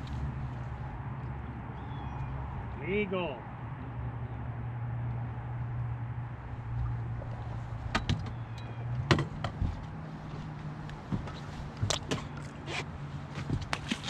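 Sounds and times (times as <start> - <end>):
knocks and clunks on deck: 7.8 - 12.4, 13.3 - 14.0.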